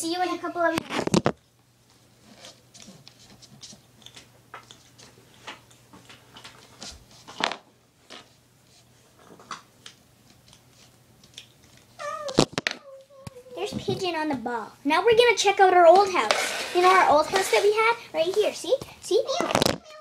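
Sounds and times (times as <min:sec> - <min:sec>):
handling taps and rustles: 0:00.6 - 0:08.4, 0:09.1 - 0:14.5.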